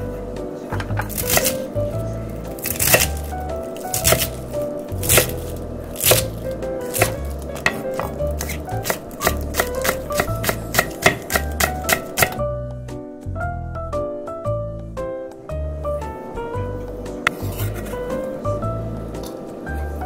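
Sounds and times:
knife chopping on wooden board: 0.8 - 1.6, 2.6 - 4.4, 5.0 - 12.4.

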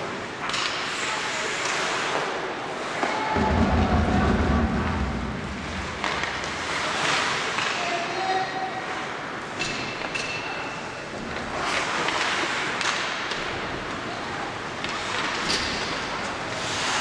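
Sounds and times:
hockey sticks and puck clacking: 0.0 - 3.3, 5.6 - 8.2, 9.0 - 17.0
arena noise: 0.0 - 17.0
skates on ice: 0.4 - 3.4, 5.6 - 8.3, 11.2 - 17.0.

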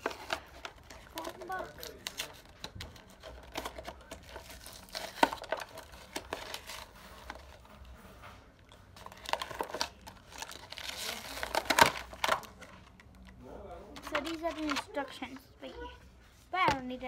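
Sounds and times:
plastic packaging crinkling: 0.0 - 7.7, 8.7 - 12.8.

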